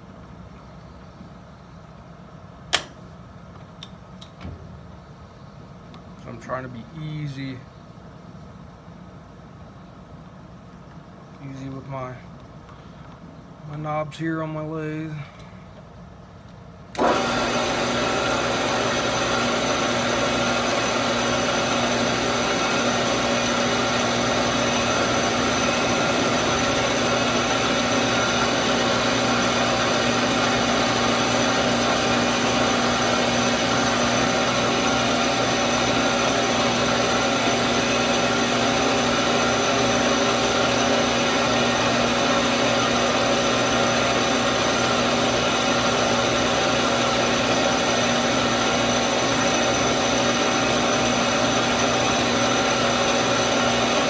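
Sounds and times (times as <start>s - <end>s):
metal lathe whine: 17.0s - 54.0s.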